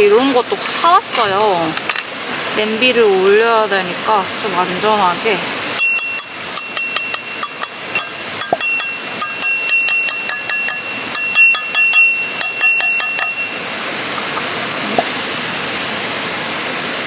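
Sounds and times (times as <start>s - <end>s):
steady background hiss: 0.0s - 17.0s
hammer tapping steel stakes: 5.8s - 13.4s
stakes ringing metallic tone: 5.8s - 13.6s.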